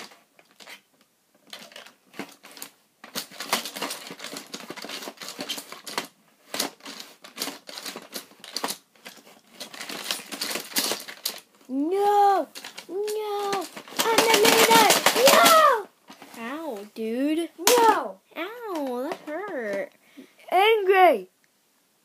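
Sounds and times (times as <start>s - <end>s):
plastic toy robots clattering: 1.4s - 16.5s, 17.6s - 18.0s, 18.7s - 19.9s.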